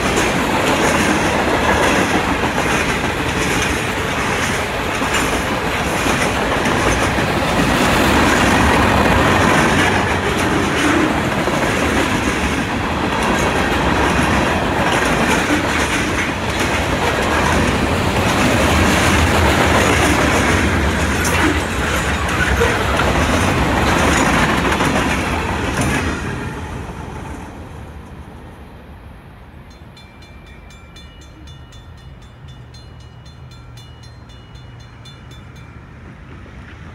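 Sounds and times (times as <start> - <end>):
wheels clicking over rail joints: 0.0 - 26.4
freight train rumbling and rattling: 0.0 - 36.9.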